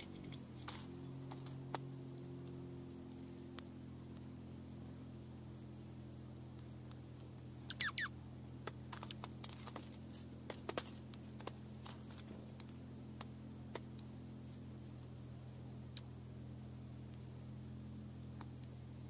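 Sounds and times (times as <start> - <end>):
birds pecking on metal feeder: 0.0 - 2.6, 8.6 - 14.7
distant road noise hum: 0.0 - 19.0
high downward squeak: 7.7 - 8.1.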